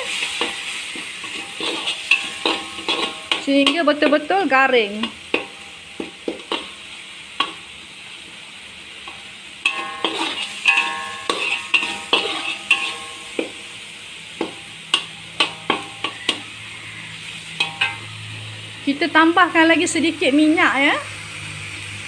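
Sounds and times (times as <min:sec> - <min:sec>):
metal spatula scraping a wok: 0:00.0 - 0:07.7, 0:09.0 - 0:19.0
oil sizzling: 0:00.0 - 0:22.0.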